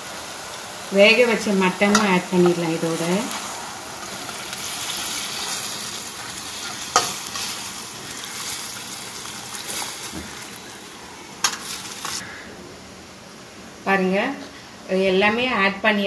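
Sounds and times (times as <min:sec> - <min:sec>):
food sizzling in oil: 0:00.0 - 0:12.3.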